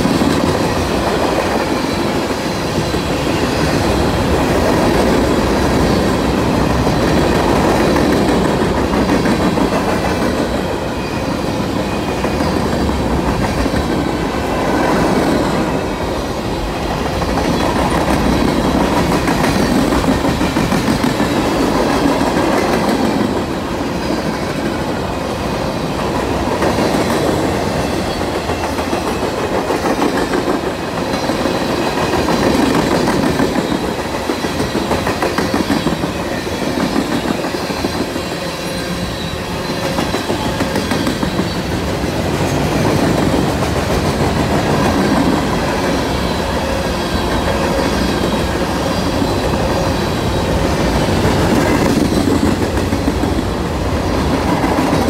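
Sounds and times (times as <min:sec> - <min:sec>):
train wheels clacking over rails: 0:00.0 - 0:55.0.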